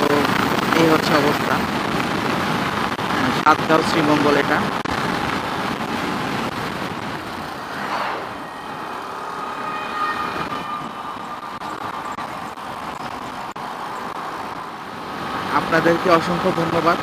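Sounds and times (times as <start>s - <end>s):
motorcycle riding noise: 0.0s - 17.0s
rushing wash: 0.0s - 17.0s
faint high whine: 7.2s - 13.6s.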